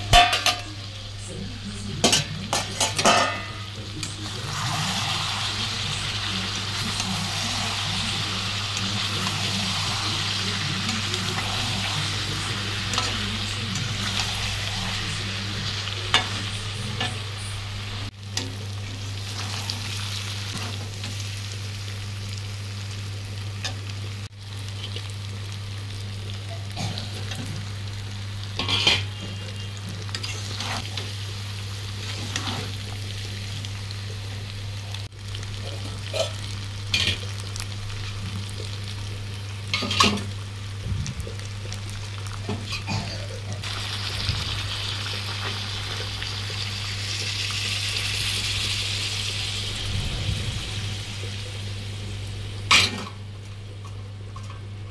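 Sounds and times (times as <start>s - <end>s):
curry sizzling in a pan: 0.0s - 54.9s
water poured into hot pan: 43.6s - 51.6s
low hum: 48.0s - 52.8s.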